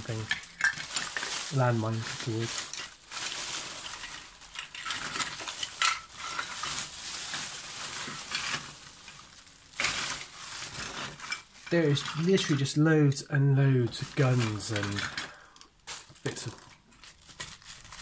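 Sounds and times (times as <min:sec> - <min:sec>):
rustling: 0:00.0 - 0:12.8, 0:13.8 - 0:18.0
plastic toys clattering: 0:00.0 - 0:18.0.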